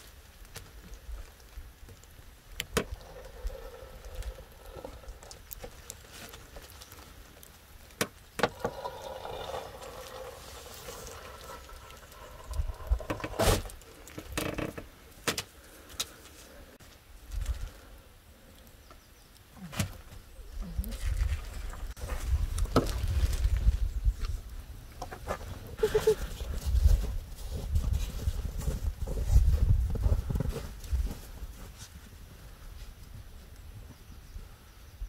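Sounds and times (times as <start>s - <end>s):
light rustling of plastic sheet: 25.1s - 33.6s.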